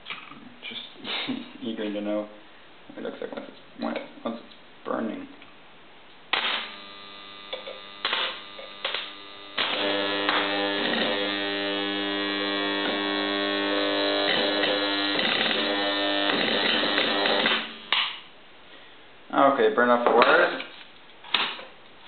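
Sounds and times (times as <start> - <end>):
transformer humming loudly: 6.6 - 18.0.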